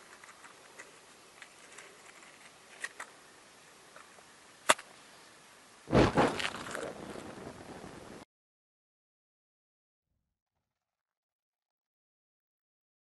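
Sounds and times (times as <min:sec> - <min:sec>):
whoosh of flames igniting: 0:05.9 - 0:08.2.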